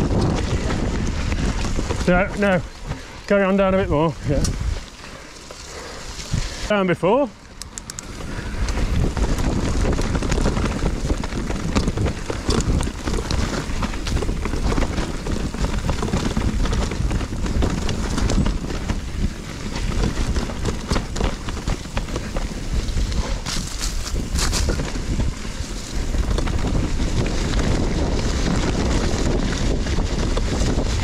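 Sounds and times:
wind on microphone: 0.0s - 6.8s, 7.6s - 31.0s
bike rattling over bumps: 0.0s - 31.0s
bike tyres rumbling on trail: 0.0s - 31.0s.

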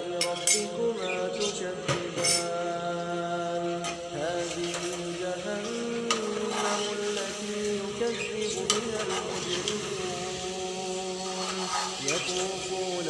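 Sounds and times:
slow recitation with held notes: 0.0s - 13.0s
steel spatula scraping a pot: 6.1s - 7.4s, 8.0s - 10.0s, 11.2s - 12.6s.

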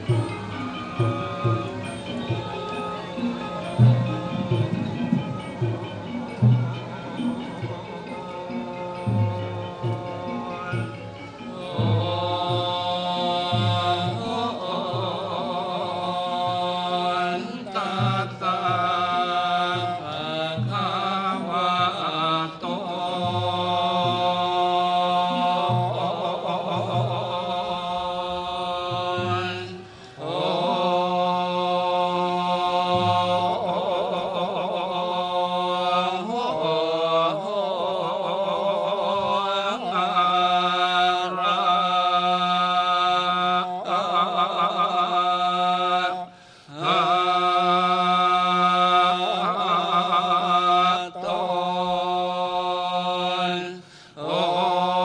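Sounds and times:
monks chanting: 0.0s - 55.0s.

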